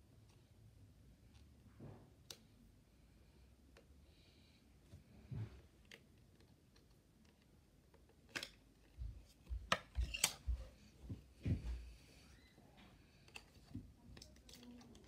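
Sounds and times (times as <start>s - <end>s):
soft low thumps: 10.4s - 12.0s.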